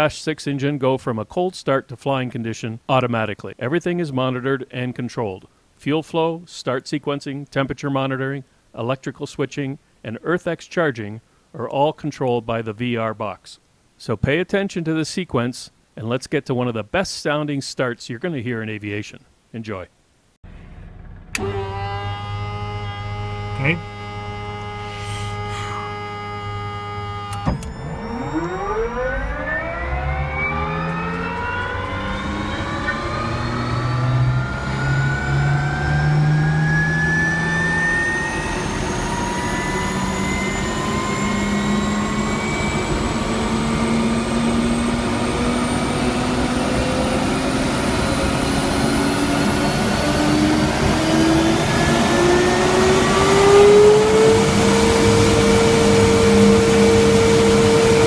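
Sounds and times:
turboprop engine whine: 0:20.5 - 0:58.0.

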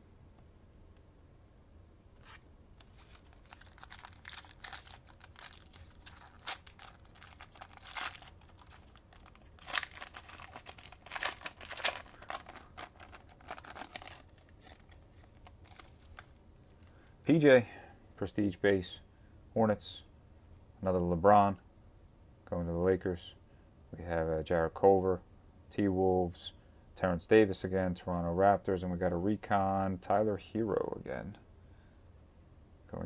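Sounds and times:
foil wrapper tearing and crinkling: 0:02.2 - 0:16.9.

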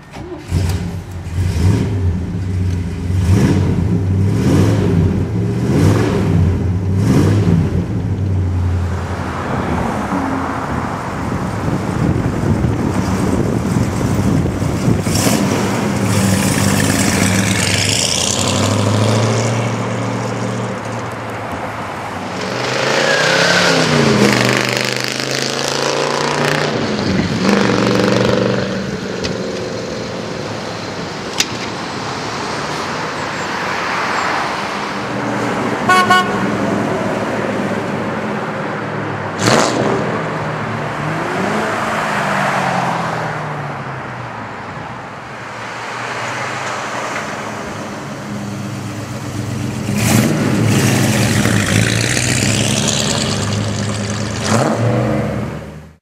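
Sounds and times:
road traffic: 0:00.0 - 0:56.0
car engine revving: 0:00.2 - 0:20.9, 0:22.2 - 0:29.4, 0:39.3 - 0:42.9, 0:45.7 - 0:55.9.

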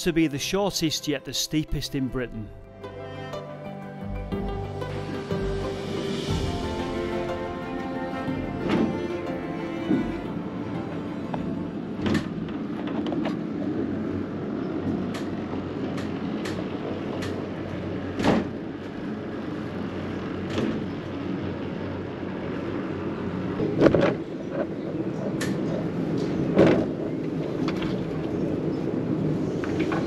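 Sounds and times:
funicular car rumbling on rails: 0:06.3 - 0:30.0.

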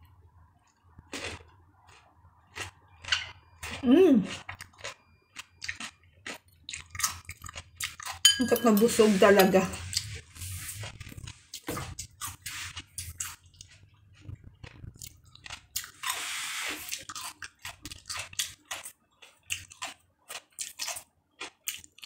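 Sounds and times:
person chewing melon: 0:00.5 - 0:08.2, 0:09.8 - 0:22.0.

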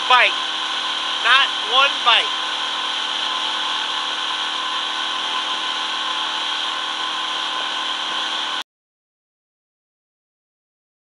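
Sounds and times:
outboard motor running: 0:00.0 - 0:08.6.

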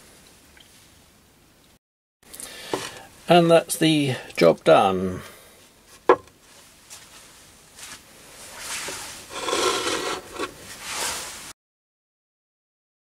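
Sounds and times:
scraping and rubbing: 0:08.6 - 0:11.5.

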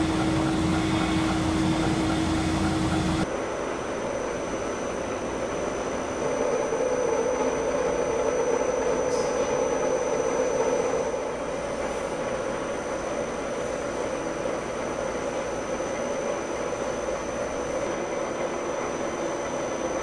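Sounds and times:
machinery hum: 0:00.0 - 0:20.0.

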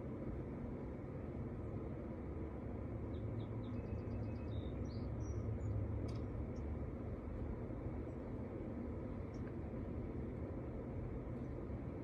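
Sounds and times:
faint high bird chirps: 0:03.1 - 0:05.8.

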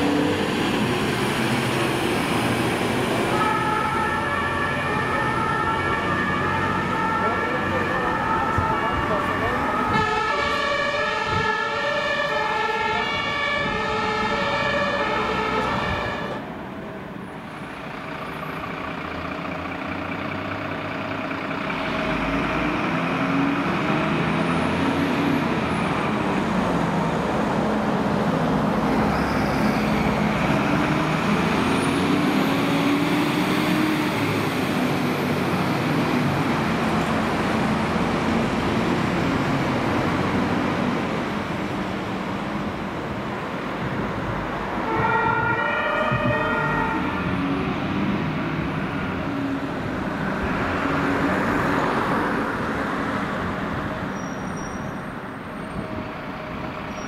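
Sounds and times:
fire engine diesel engine: 0:00.0 - 0:57.0
road noise: 0:00.0 - 0:57.0
two-tone fire siren: 0:03.2 - 0:16.5, 0:44.8 - 0:47.8.

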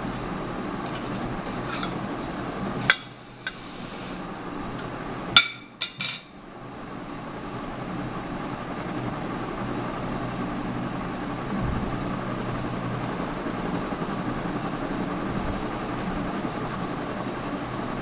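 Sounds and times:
low background hum: 0:00.0 - 0:18.0
glass plate clinking on table: 0:05.4 - 0:06.3.

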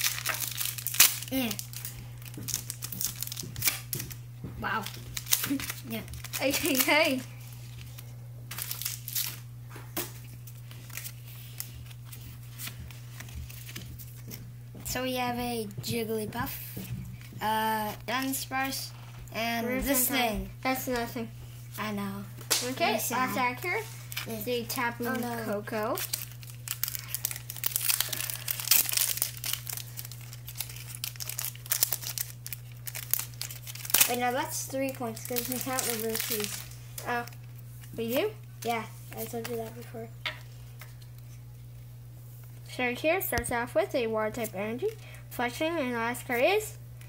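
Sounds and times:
foil wrapper crinkling and tearing: 0:00.0 - 0:14.3, 0:22.5 - 0:37.7
cards rustling and flicking: 0:00.0 - 0:14.5, 0:22.4 - 0:41.4
steady low hum: 0:00.0 - 0:47.0.

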